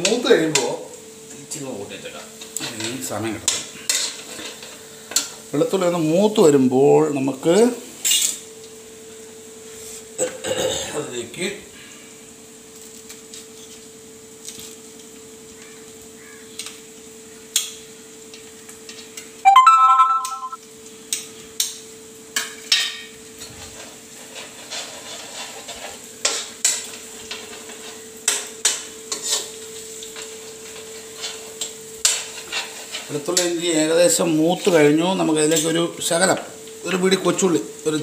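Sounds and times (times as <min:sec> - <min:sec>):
garlic sizzling in oil: 0:00.0 - 0:10.2, 0:20.8 - 0:38.0
loud electronic tone: 0:19.5 - 0:20.6.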